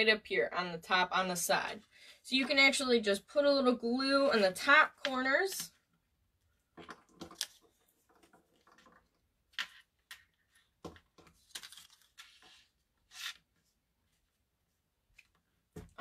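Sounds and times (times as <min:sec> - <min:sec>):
paper rustling and scraping: 0:10.5 - 0:13.7.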